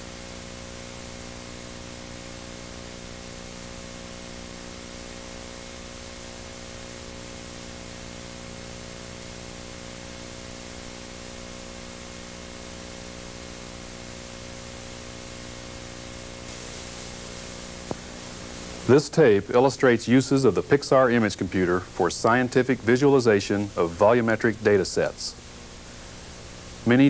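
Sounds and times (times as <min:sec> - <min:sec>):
low mains hum: 0:00.0 - 0:27.0
tape hiss: 0:00.0 - 0:27.0.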